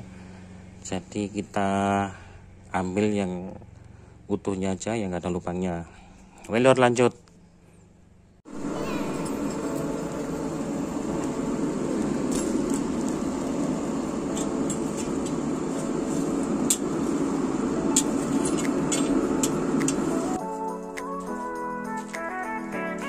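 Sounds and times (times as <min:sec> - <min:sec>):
forge fire roaring: 0:08.5 - 0:20.4
coals crackling and popping: 0:09.7 - 0:20.4.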